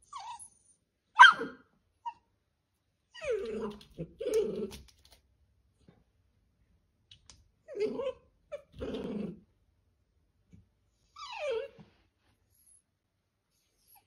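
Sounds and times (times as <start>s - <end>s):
dog barking: 1.2s - 1.6s
dog growling: 3.2s - 4.9s, 7.7s - 9.4s.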